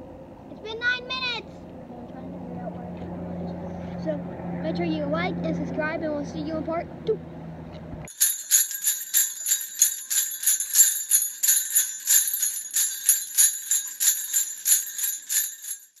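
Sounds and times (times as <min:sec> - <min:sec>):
bells shaking in rhythm: 0:08.1 - 0:16.0.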